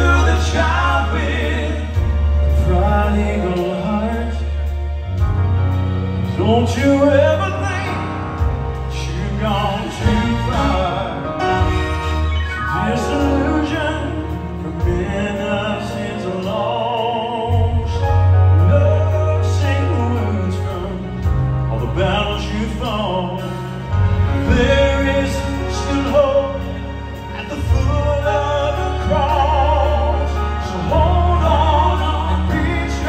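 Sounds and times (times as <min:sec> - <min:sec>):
man singing with vibrato: 0:00.0 - 0:04.7, 0:06.3 - 0:11.8, 0:12.4 - 0:33.0
instrumental accompaniment with bass: 0:00.0 - 0:33.0.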